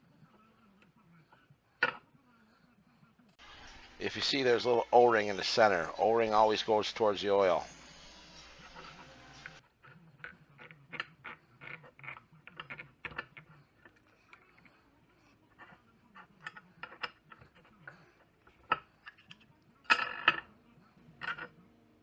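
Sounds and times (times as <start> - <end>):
metal parts clicking and tapping: 9.8 - 14.4.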